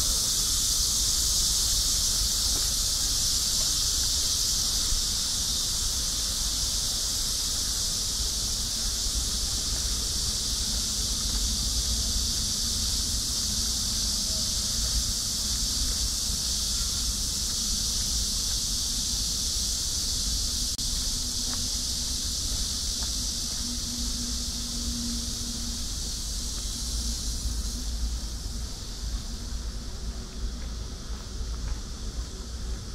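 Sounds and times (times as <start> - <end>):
shrill insect chorus: 0.0 - 32.9.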